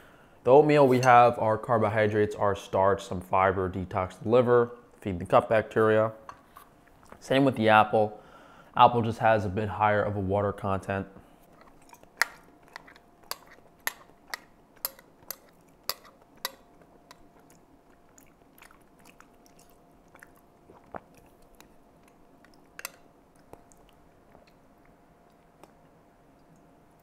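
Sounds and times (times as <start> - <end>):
quiet chewing: 11.2 - 27.0
spoon clicking against ceramic bowl: 13.3 - 17.2.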